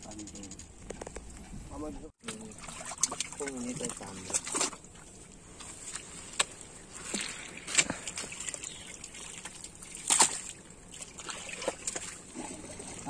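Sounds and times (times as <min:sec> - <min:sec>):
hands squelching in mud: 0:02.6 - 0:13.0
sharp slaps in water: 0:09.4 - 0:12.2.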